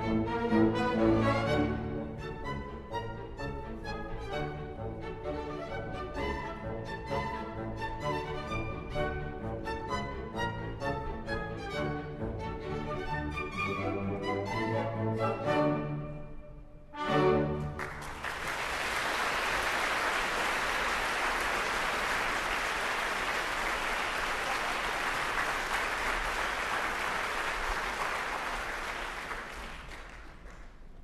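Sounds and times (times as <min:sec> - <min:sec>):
audience applauding: 0:17.6 - 0:31.0.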